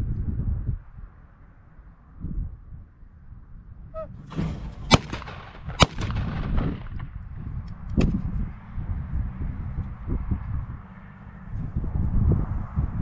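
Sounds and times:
weaker sharp crack: 4.0s - 8.2s
shotgun shots: 4.2s - 7.2s.

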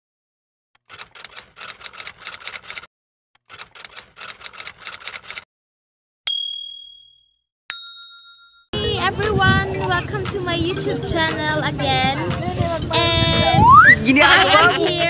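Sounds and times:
typewriter keys clacking: 0.8s - 2.9s, 3.5s - 5.4s
typewriter bell ding: 6.3s - 8.7s.

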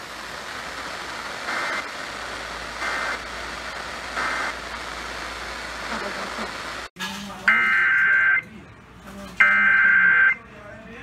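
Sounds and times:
radio hiss: 0.0s - 6.9s
digital data tone bursts: 7.5s - 8.4s, 9.4s - 10.4s.

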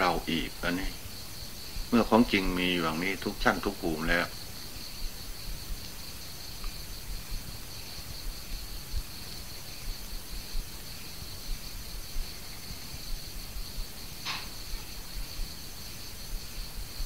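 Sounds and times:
insects chirring: 0.0s - 17.0s
recording hiss: 0.0s - 17.0s.

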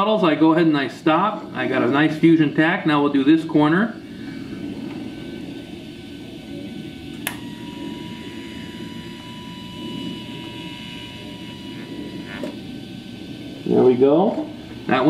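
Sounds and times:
low steady hum: 0.0s - 15.0s
welding arc whine: 0.0s - 15.0s
welding arc striking click: 7.1s - 7.5s.

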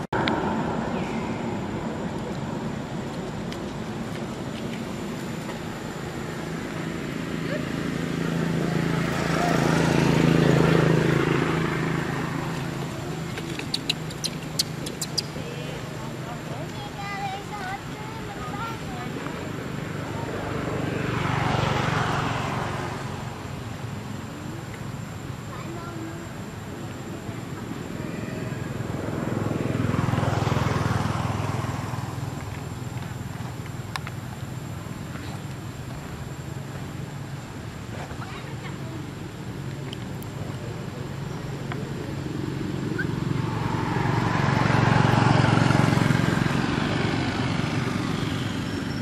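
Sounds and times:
vehicle engine passing: 3.8s - 24.3s, 36.9s - 49.0s.

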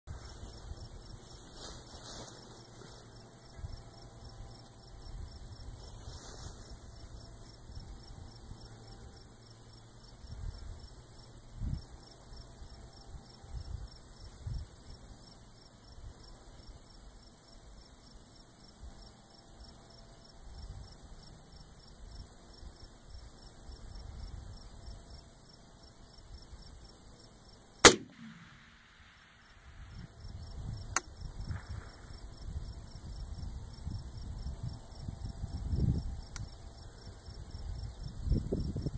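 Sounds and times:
insects chirping: 0.1s - 38.9s
wind rumble on microphone: 10.2s - 10.9s, 11.5s - 12.0s, 12.6s - 14.8s, 29.7s - 38.9s
rifle shot with echo: 27.8s - 29.4s.

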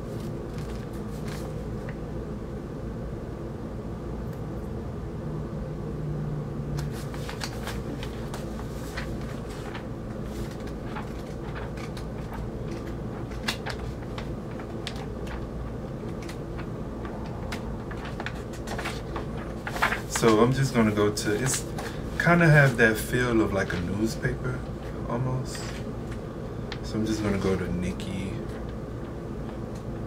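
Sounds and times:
paper pages rustling: 0.0s - 2.0s, 6.8s - 26.2s
steady low hum: 0.0s - 30.0s.

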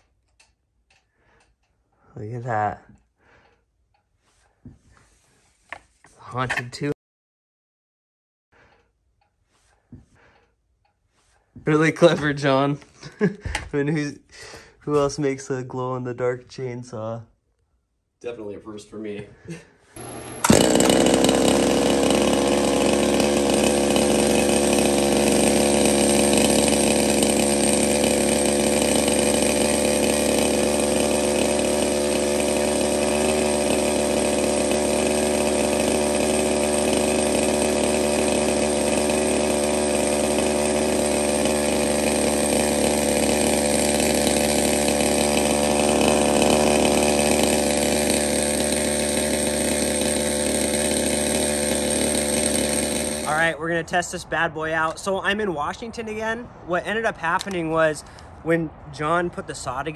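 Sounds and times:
chainsaw engine at high revs: 11.7s - 13.3s, 20.0s - 53.8s.

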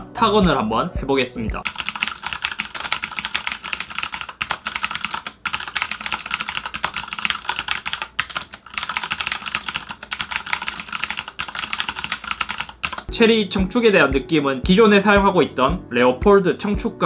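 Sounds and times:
mechanical keyboard typing: 1.6s - 13.1s.

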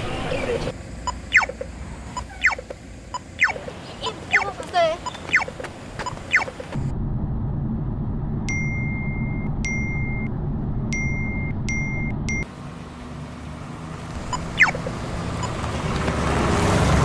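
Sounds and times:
car cabin rumble: 0.1s - 12.4s
electronic warning beeps: 1.0s - 3.6s, 4.3s - 6.9s, 8.5s - 10.3s, 11.0s - 12.5s, 14.3s - 15.6s.

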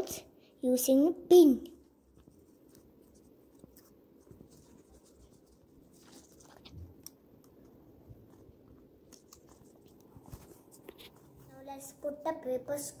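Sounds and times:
soft paper crackles: 1.8s - 12.2s
paper rustling: 2.0s - 11.6s.

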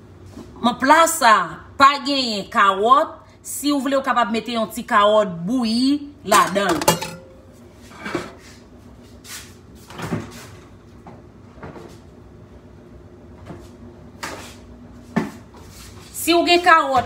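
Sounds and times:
dishes clunking: 6.3s - 7.6s.

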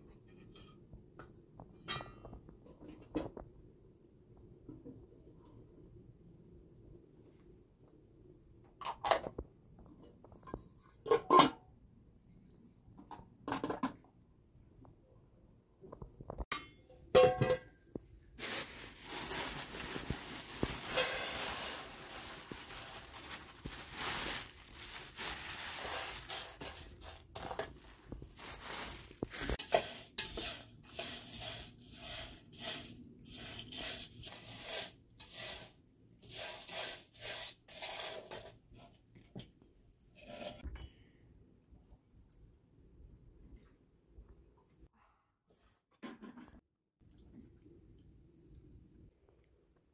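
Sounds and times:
plastic bag crinkle: 18.1s - 29.6s
seeds rattling into metal pan: 18.4s - 38.6s
spoon scraping seeds in pan: 25.8s - 27.8s, 29.1s - 38.9s.

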